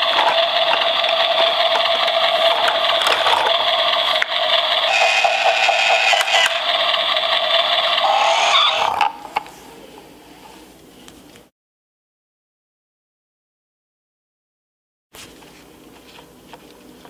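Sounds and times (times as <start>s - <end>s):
toy buzzy electronic tone: 4.8s - 9.3s.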